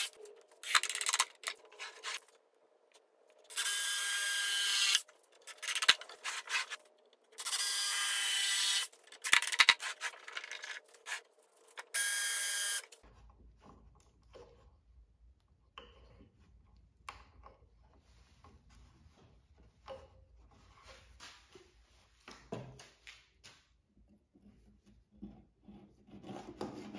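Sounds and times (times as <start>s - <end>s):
drill driving screws into wood: 3.5s - 5.0s.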